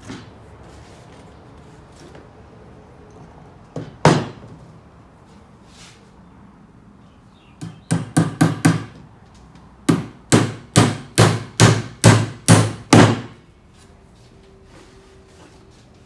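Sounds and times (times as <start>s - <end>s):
hammer driving nail into wood: 9.9s - 13.4s.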